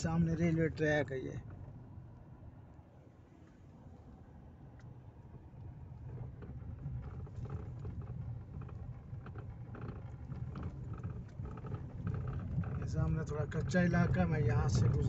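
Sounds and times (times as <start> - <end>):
car road rumble on gravel: 0.0 - 15.0
stones clicking under tyres: 6.0 - 15.0.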